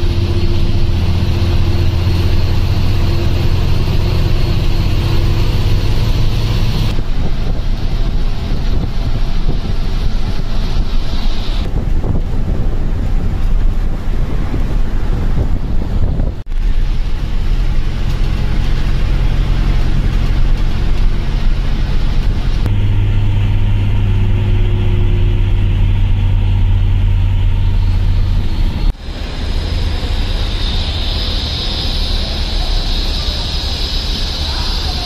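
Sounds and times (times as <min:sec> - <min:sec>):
bus engine hum: 0:00.0 - 0:35.0
road noise: 0:00.0 - 0:35.0
high hiss: 0:27.8 - 0:35.0.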